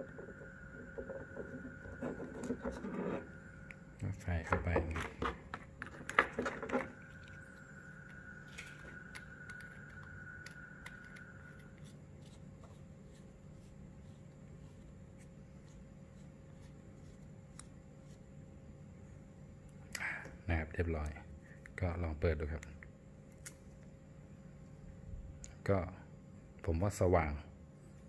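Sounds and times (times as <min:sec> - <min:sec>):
cap scraping on threads: 0:00.1 - 0:03.4.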